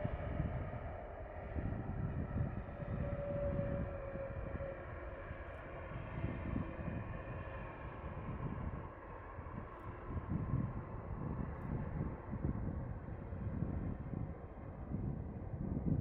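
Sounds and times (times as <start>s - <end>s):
airliner engines whining: 0.0s - 16.0s.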